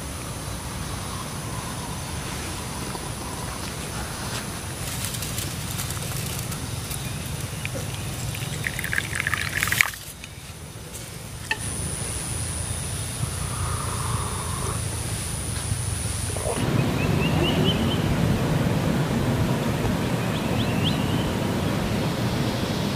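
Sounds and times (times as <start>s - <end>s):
high-pitched whine: 0.0s - 22.9s
coffee pouring into a cup: 5.6s - 10.2s.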